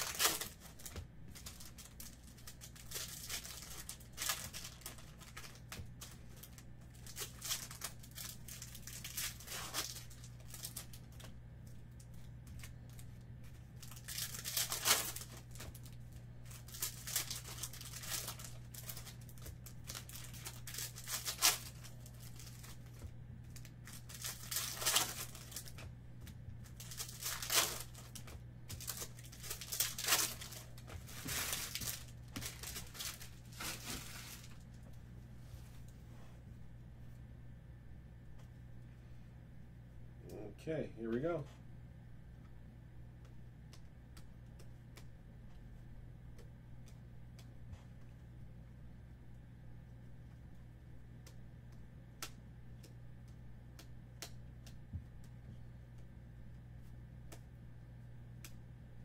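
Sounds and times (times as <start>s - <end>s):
foil wrappers tearing and crinkling: 0.0s - 11.4s, 12.0s - 25.9s, 26.6s - 34.8s.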